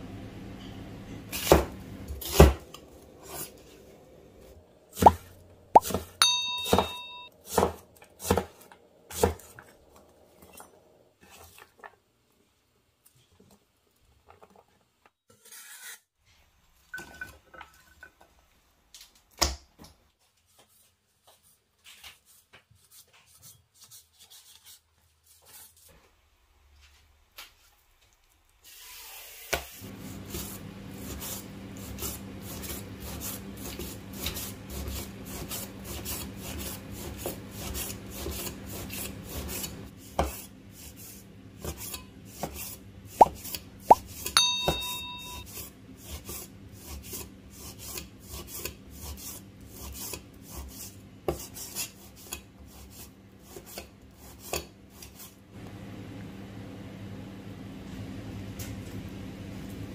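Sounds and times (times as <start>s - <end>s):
knife chopping on wooden board: 1.3s - 2.7s, 5.8s - 9.5s.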